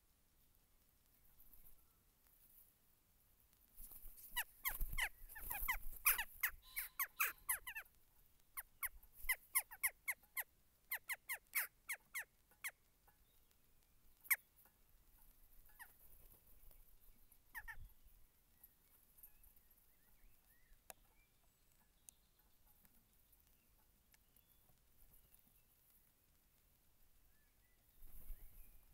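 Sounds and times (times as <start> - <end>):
jackdaws calling: 4.2 - 7.9, 8.6 - 12.8, 15.6 - 16.1, 17.5 - 17.9.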